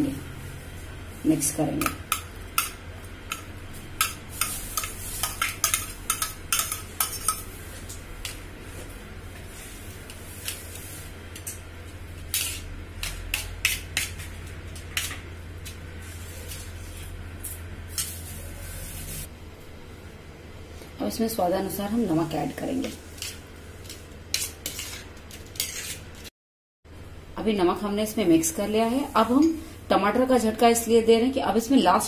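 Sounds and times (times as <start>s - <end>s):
spoon clinking and scraping on plate: 4.0s - 7.6s, 23.2s - 26.0s.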